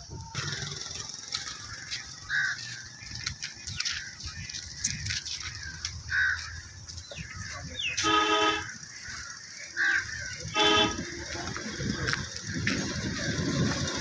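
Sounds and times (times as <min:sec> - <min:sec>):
bird chirps: 0:00.5 - 0:10.5
vehicle horn honking: 0:07.9 - 0:08.9, 0:09.9 - 0:12.1.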